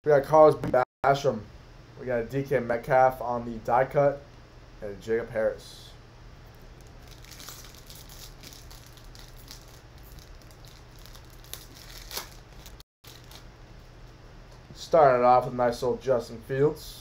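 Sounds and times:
foil wrapper crinkling: 0:06.5 - 0:13.5
foil wrapper tearing: 0:06.8 - 0:13.5.

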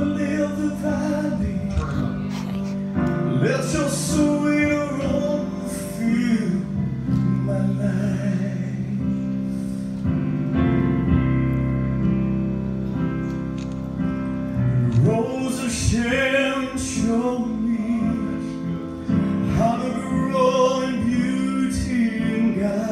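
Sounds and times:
man singing gospel: 0:00.0 - 0:02.4, 0:03.0 - 0:09.3, 0:14.8 - 0:22.9
keyboard chords: 0:00.0 - 0:22.9.

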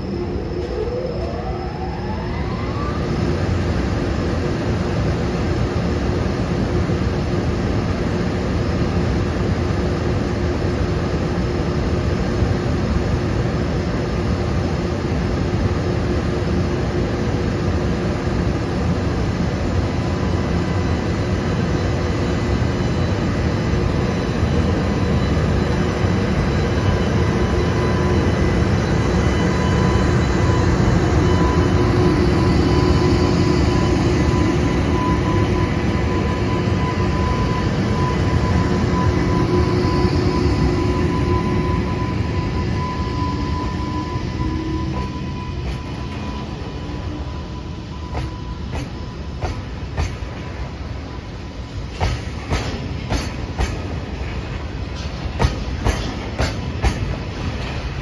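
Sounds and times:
electric locomotive whirring: 0:00.0 - 0:58.0
thin steady whine: 0:00.0 - 0:58.0.

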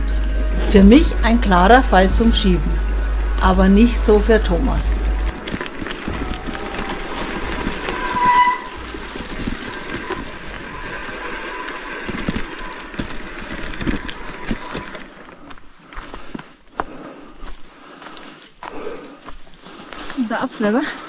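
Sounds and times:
bicycle rattling on dirt track: 0:05.3 - 0:16.6
bicycle brakes squealing: 0:06.4 - 0:15.2.

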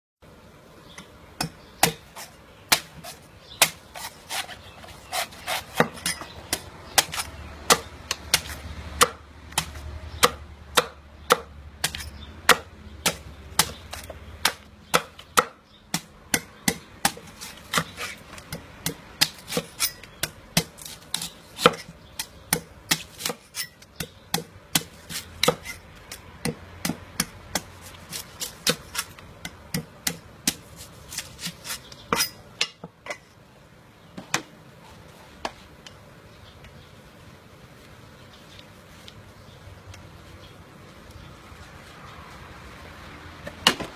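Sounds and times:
cleaver chopping coconut: 0:01.4 - 0:32.8.

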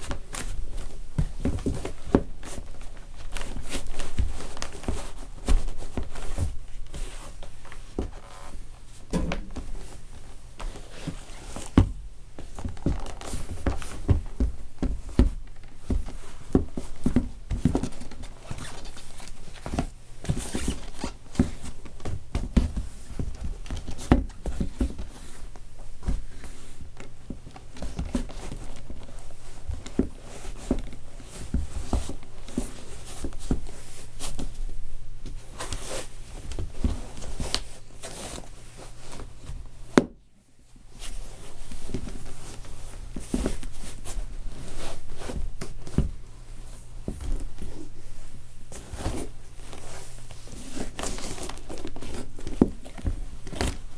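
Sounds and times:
leather scuffing and creaking: 0:00.0 - 0:40.1, 0:40.9 - 0:53.9
boots stomping on wooden floor: 0:11.7 - 0:18.0.

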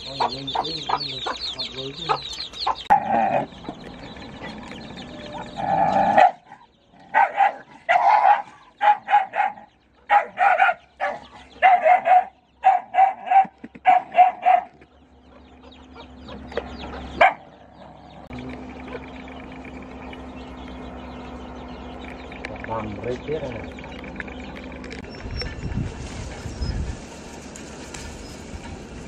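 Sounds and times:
dog barking: 0:06.1 - 0:14.8, 0:17.2 - 0:17.6.

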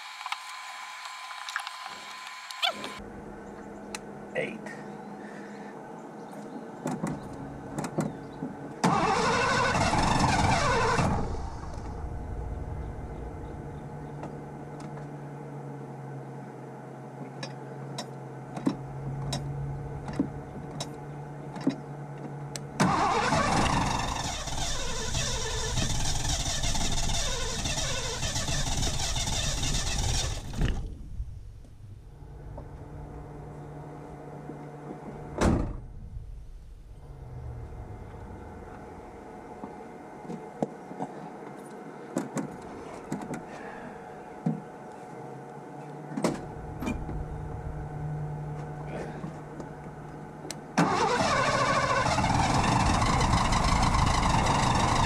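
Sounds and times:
car engine surging and idling: 0:07.2 - 0:16.6, 0:18.4 - 0:40.0, 0:46.3 - 0:55.0.

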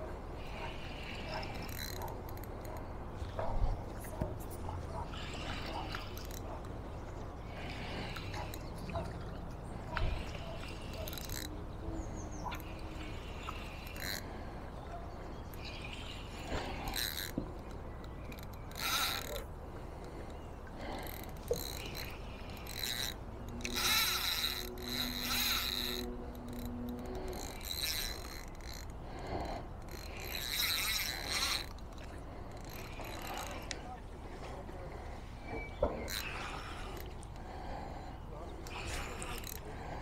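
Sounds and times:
reel clicks: 0:00.0 - 0:40.0
fishing reel winding: 0:00.4 - 0:02.9, 0:05.2 - 0:06.7, 0:09.9 - 0:11.6, 0:12.4 - 0:14.4, 0:15.5 - 0:33.9, 0:36.0 - 0:37.8, 0:38.6 - 0:40.0.

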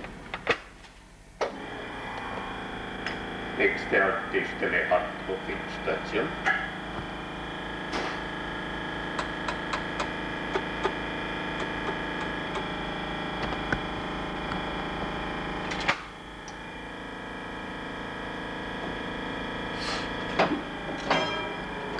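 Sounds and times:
tram running hum: 0:04.6 - 0:15.9, 0:19.7 - 0:21.9.

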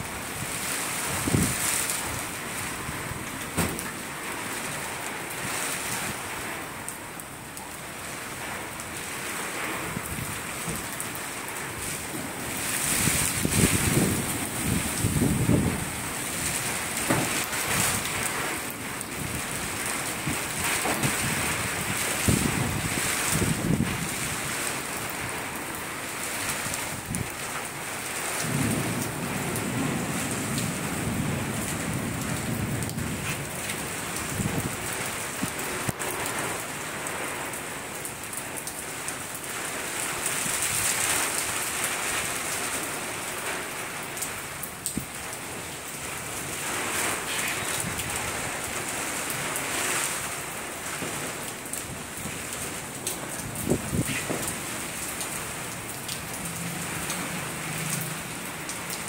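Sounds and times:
steady rain falling: 0:00.0 - 0:59.0
rolling thunder: 0:12.0 - 0:19.6, 0:28.4 - 0:35.0, 0:52.0 - 0:55.4.

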